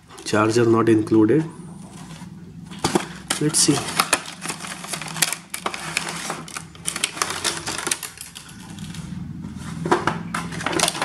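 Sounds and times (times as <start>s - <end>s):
plastic packaging crinkling: 2.8s - 9.1s.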